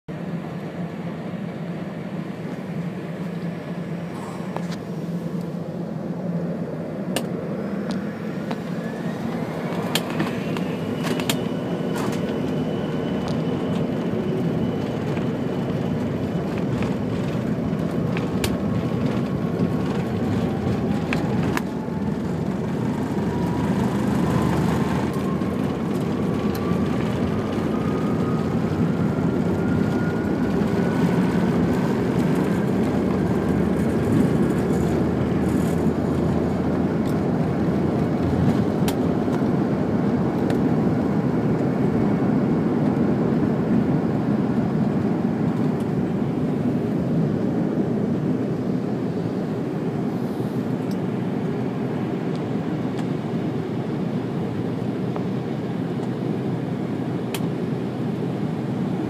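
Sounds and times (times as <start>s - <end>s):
rising engine whine: 0.1s - 59.0s
jet engines spooling up: 0.2s - 59.0s.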